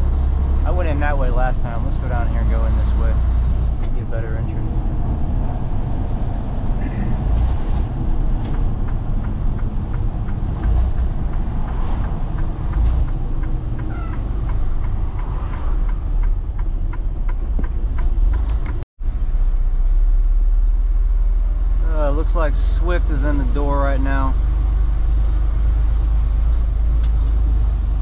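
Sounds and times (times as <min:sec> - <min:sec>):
truck engine running: 0:00.0 - 0:18.8
road noise: 0:00.0 - 0:28.0.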